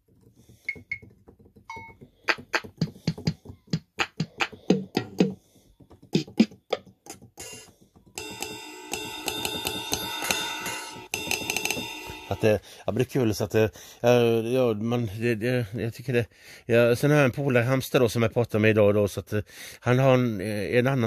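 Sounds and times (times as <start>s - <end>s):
electronic drum and handclap hits: 2.3s - 5.4s, 6.1s - 12.5s
held keyboard chord: 7.2s - 12.6s.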